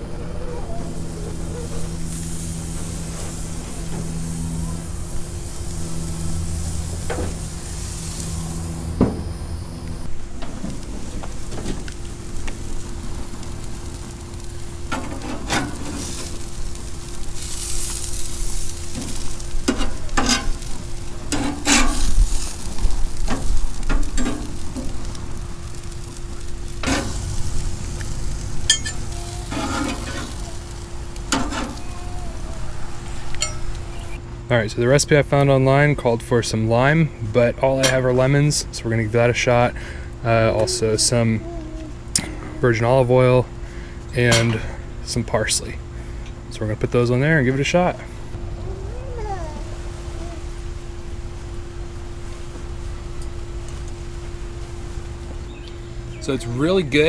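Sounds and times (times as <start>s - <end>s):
steady low hum: 0.0s - 57.0s
fish fillets sizzling on grill: 0.8s - 34.2s
metal spatula scraping grill grates: 14.4s - 16.5s, 17.4s - 25.0s, 25.7s - 31.9s.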